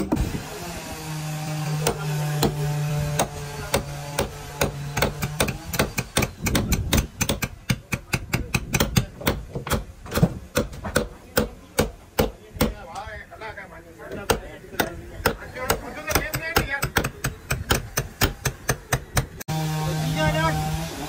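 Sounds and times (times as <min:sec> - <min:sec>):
hammer blows on wood: 0:01.4 - 0:12.8.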